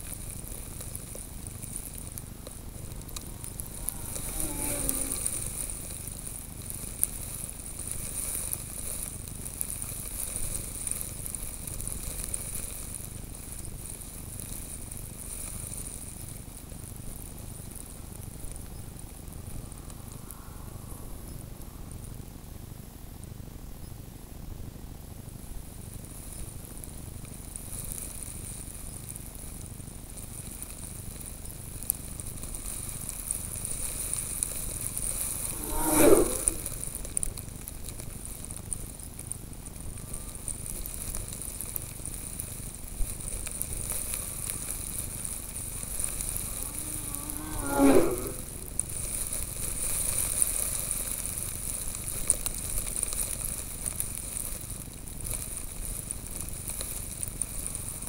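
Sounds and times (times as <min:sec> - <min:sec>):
snowmobile engines passing by: 0:00.0 - 0:16.2, 0:30.4 - 0:39.2, 0:40.0 - 0:52.2
steady hiss: 0:00.0 - 0:58.0.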